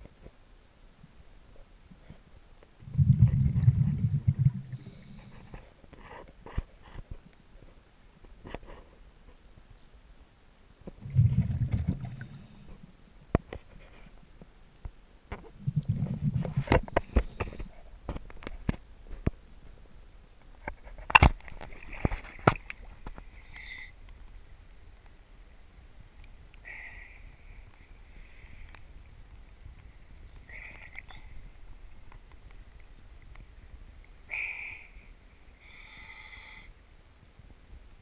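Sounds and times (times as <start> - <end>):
light water hiss: 0.0 - 38.0
muffled underwater movement: 1.6 - 7.8, 10.8 - 14.5, 15.3 - 19.8, 20.4 - 24.5
low rumbles: 2.8 - 5.6, 10.9 - 13.1, 15.4 - 18.1.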